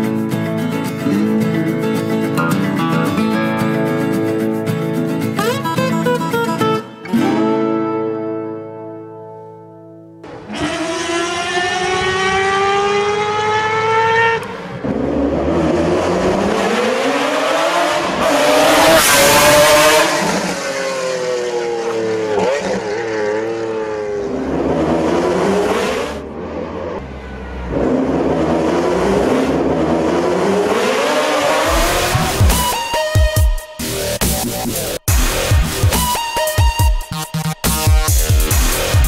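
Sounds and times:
race car engine revving: 10.2 - 32.9
rushing surge: 31.6 - 32.9.

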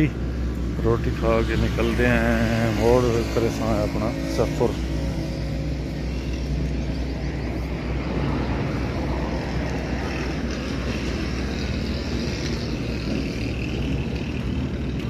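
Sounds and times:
truck engine idling: 0.0 - 9.1.

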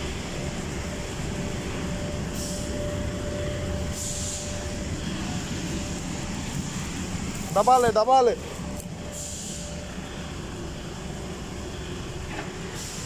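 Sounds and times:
thin whine: 0.0 - 12.2.

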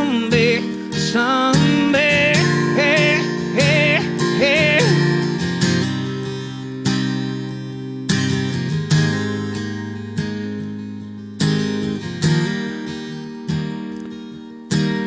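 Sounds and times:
man singing wordless notes: 0.0 - 5.4
strummed acoustic guitar: 0.0 - 15.0.

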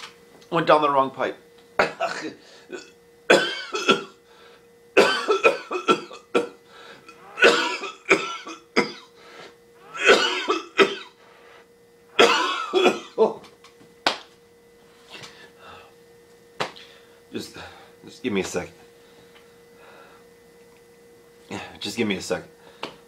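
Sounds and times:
man coughing: 1.8 - 4.2, 5.0 - 9.2, 9.8 - 11.2, 12.2 - 13.4
throat clearing: 5.0 - 9.1.

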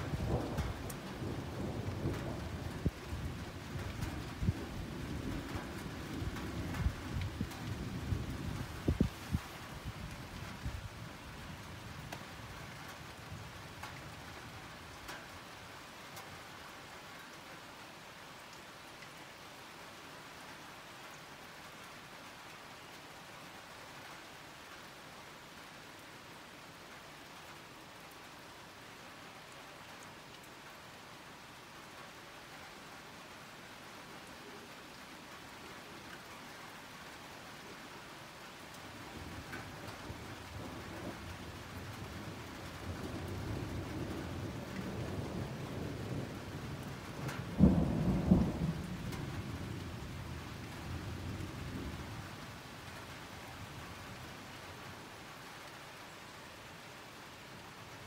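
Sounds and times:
thunder rumbling: 0.0 - 10.0, 42.8 - 52.1
steady rain: 0.0 - 58.0.

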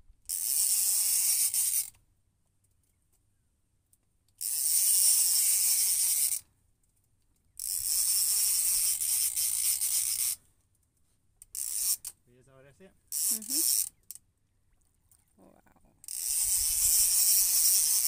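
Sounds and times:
fishing reel ratcheting: 0.3 - 2.0, 4.4 - 6.4, 7.6 - 10.4, 11.4 - 12.2, 13.1 - 14.2, 16.0 - 18.0.

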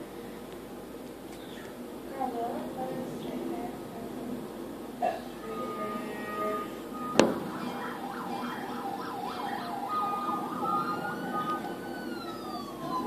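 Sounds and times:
siren wavering: 5.4 - 13.0.

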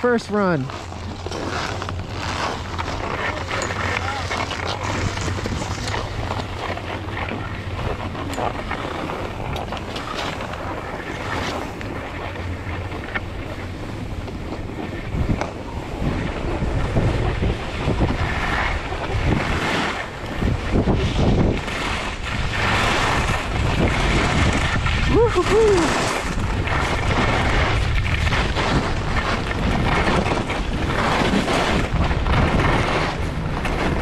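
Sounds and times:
wind buffeting microphone: 0.0 - 34.0
skis hissing over snow: 25.0 - 29.4.

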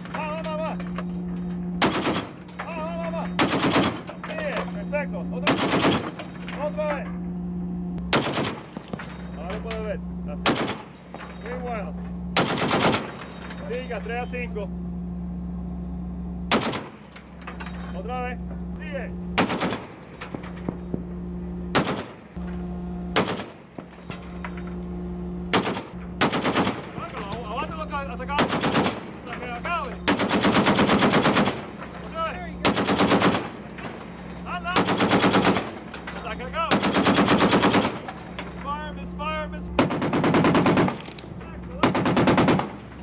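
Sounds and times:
steady low hum: 0.0 - 43.0
heavy machine gun firing: 1.8 - 4.7, 5.4 - 6.3, 8.0 - 8.9, 10.4 - 11.0, 12.3 - 13.2, 16.5 - 17.1, 19.4 - 20.7, 21.7 - 22.4, 23.1 - 23.7, 25.5 - 27.4, 28.2 - 32.0, 32.6 - 36.0, 36.6 - 38.1, 39.7 - 41.2, 41.8 - 43.0.

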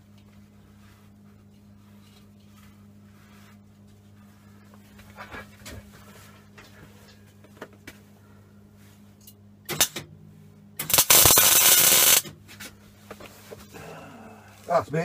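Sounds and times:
welder arc crackling: 10.8 - 12.3.

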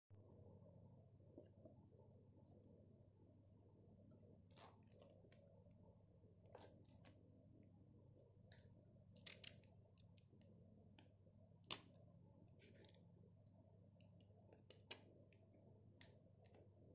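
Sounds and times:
plastic items clicking: 9.2 - 9.7.

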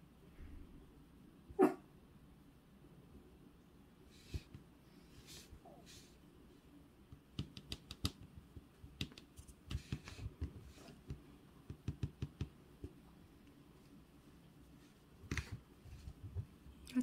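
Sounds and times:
small sharp clicks and taps: 7.1 - 13.6.

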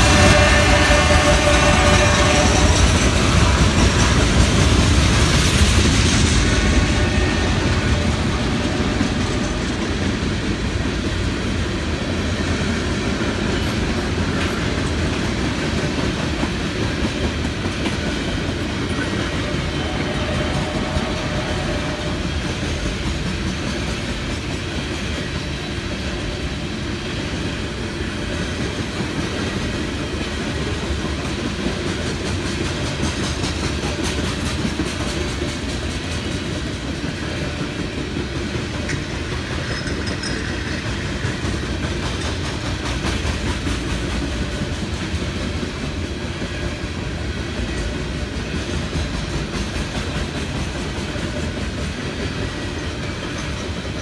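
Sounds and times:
train wheels clacking on rails: 0.0 - 54.0.

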